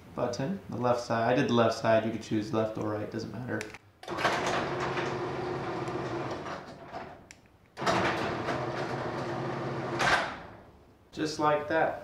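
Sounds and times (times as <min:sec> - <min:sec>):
garage door opener motor hum: 0:04.0 - 0:07.2, 0:07.8 - 0:10.7.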